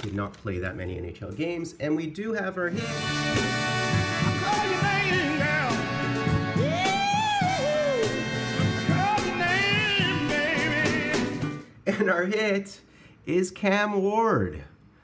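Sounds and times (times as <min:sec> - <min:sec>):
band accompaniment: 0:02.8 - 0:11.6
soul singer holding long notes: 0:03.7 - 0:11.5.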